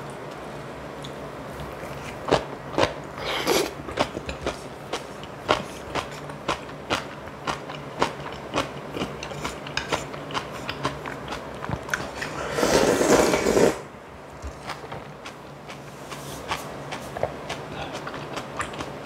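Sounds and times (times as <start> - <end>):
loud slurp: 12.2 - 13.8.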